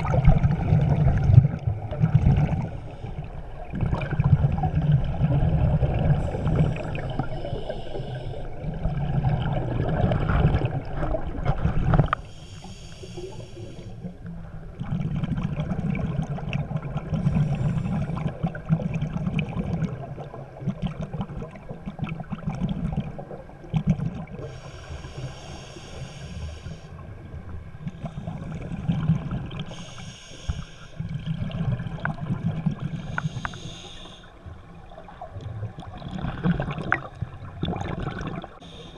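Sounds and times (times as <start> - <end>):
exhaled bubbles gurgling underwater: 0.0 - 38.9
regulator inhalation hiss: 6.4 - 8.5, 12.2 - 14.0, 24.5 - 27.0, 29.7 - 31.0, 33.0 - 34.4, 38.6 - 38.9.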